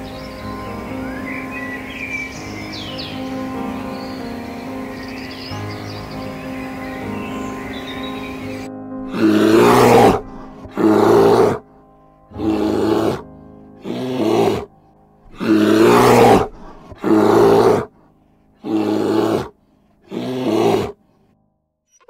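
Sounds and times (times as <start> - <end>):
bear growling: 9.0 - 11.6, 12.3 - 17.9, 18.6 - 21.0.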